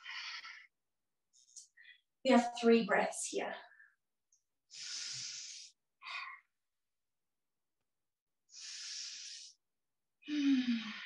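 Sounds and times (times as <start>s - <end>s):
woman breathing audibly: 0.0s - 2.1s, 4.7s - 6.6s, 8.5s - 11.0s.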